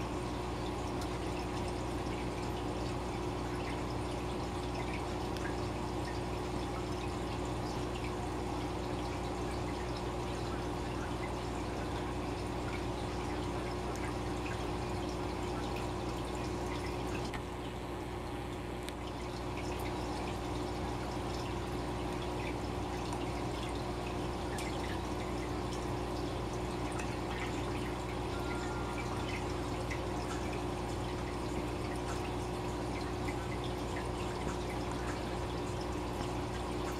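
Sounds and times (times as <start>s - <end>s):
air bubbles in aquarium: 0.0s - 36.9s
filter water trickling: 0.0s - 36.9s
water drips and pops: 3.5s - 8.2s, 18.8s - 28.2s, 29.0s - 36.9s
low hum: 20.9s - 36.5s.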